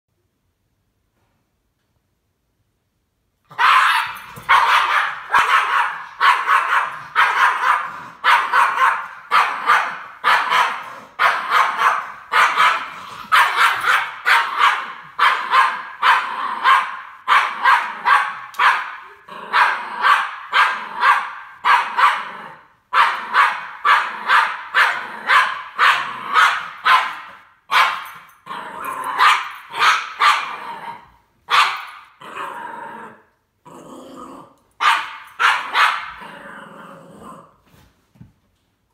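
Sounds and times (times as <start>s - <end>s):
dog barking sharply: 3.5s - 22.3s, 22.9s - 28.2s, 29.2s - 30.5s, 31.5s - 32.0s, 34.8s - 36.2s.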